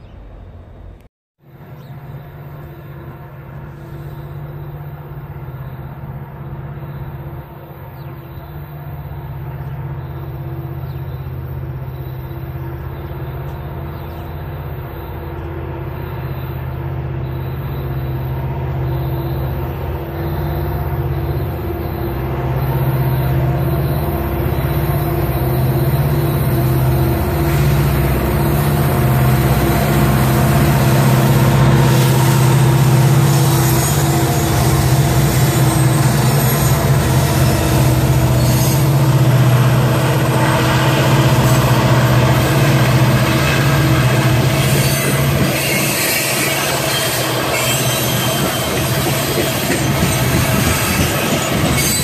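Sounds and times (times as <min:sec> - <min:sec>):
locomotive engines droning: 0:00.0 - 0:52.0.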